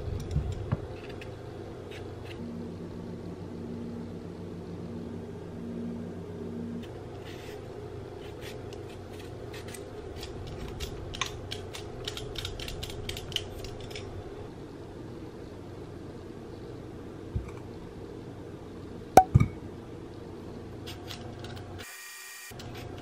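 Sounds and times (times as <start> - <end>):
steady low hum: 0.0 - 21.8
pulsing low humming tone: 2.3 - 8.2
peeler scraping potato skin: 8.2 - 14.0.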